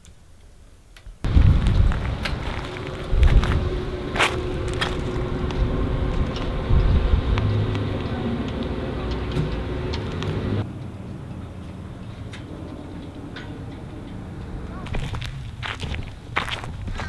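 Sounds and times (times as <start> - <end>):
steady hum: 1.2 - 10.7
wind rumbling on microphone: 1.2 - 10.7, 11.8 - 17.0
footsteps on gravel: 1.3 - 9.2, 14.8 - 17.0.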